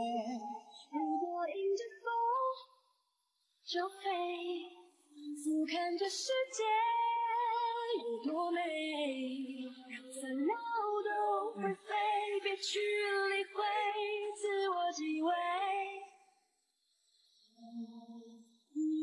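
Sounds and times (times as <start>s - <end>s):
woman singing with vibrato: 5.4s - 16.0s.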